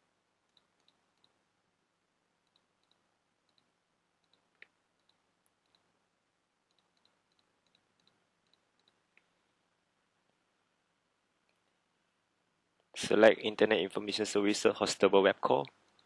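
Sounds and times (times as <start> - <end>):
computer mouse clicks: 0.5 - 1.4, 2.4 - 5.9, 6.7 - 9.3.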